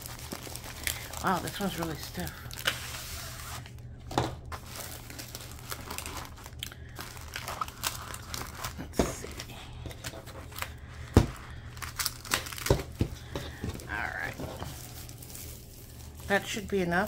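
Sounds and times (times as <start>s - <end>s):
canvas and paper crinkling: 0.0s - 3.8s, 4.5s - 17.0s.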